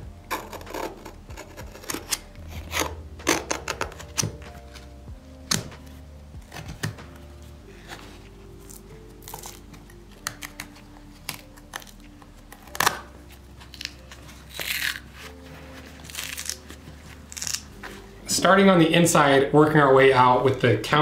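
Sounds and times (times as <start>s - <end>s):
soft background music: 0.0s - 21.0s
leather layers tearing: 0.3s - 4.9s, 7.8s - 18.1s.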